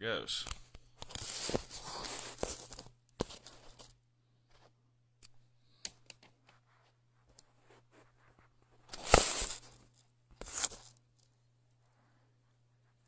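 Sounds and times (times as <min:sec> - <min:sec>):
rustling: 0:01.0 - 0:04.8, 0:06.5 - 0:13.0.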